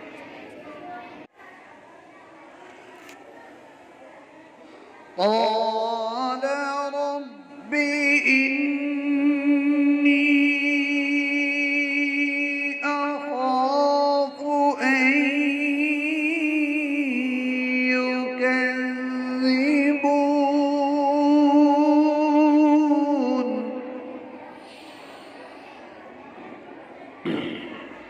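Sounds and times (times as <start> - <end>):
man chanting melodically: 5.2 - 24.1.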